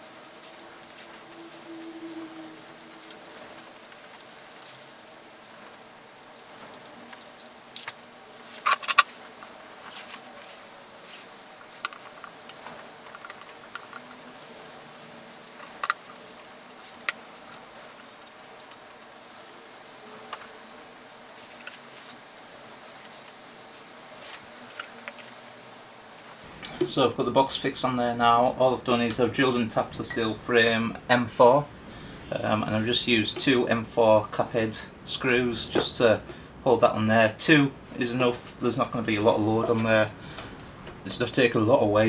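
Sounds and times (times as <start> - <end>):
metal clicks and scrapes: 0.0 - 8.0, 8.6 - 9.2.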